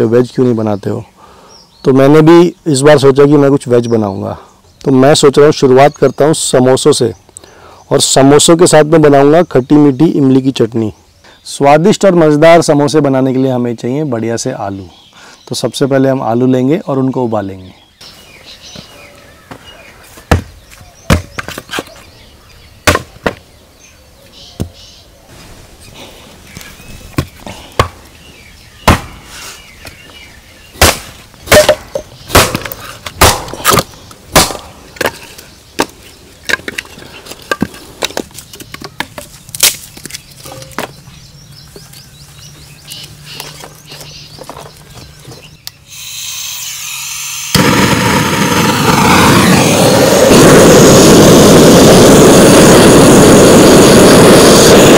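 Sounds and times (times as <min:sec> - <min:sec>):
hard objects knocking: 0:31.5 - 0:32.8.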